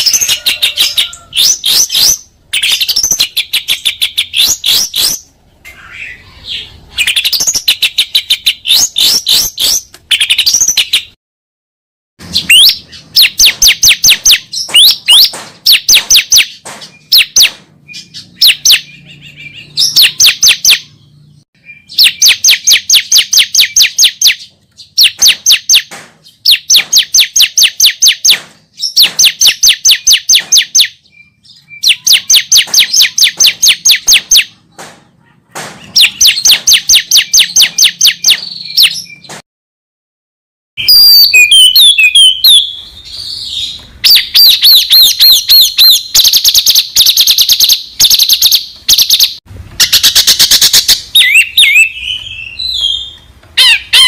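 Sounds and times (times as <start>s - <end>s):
songbird warbling: 0.0s - 11.1s, 40.8s - 54.0s
songbird repeated high notes: 12.2s - 21.0s, 21.6s - 34.6s, 35.2s - 39.3s, 40.8s - 54.0s.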